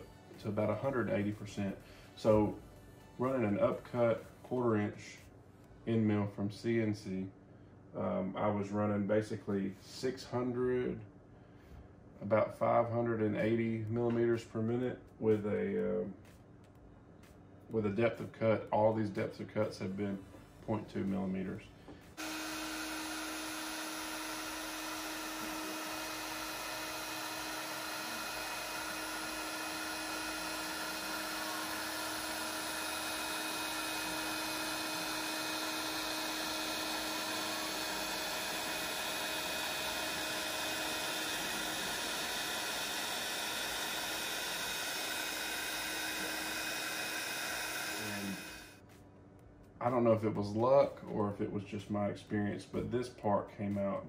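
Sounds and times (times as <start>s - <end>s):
end mill cutting metal: 22.2s - 48.7s
router spindle high whine: 22.2s - 48.8s.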